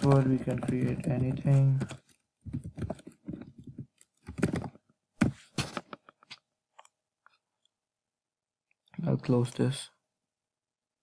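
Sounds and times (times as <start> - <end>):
computer keyboard typing: 0.0 - 4.7.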